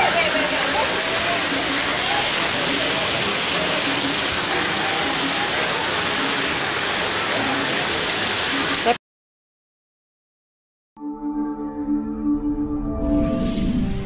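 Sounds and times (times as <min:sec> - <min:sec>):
heavy rain on a street: 0:00.0 - 0:09.0.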